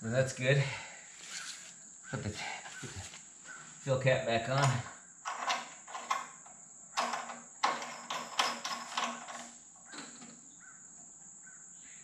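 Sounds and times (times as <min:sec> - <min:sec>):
faint crow caws: 0:01.3 - 0:03.8, 0:09.8 - 0:12.0.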